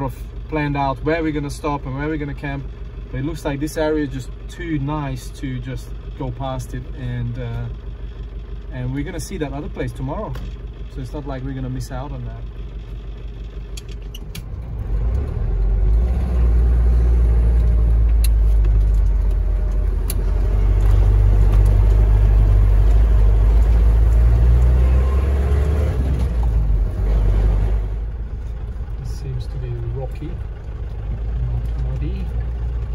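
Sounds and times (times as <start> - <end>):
truck driving on gravel: 11.3 - 32.9.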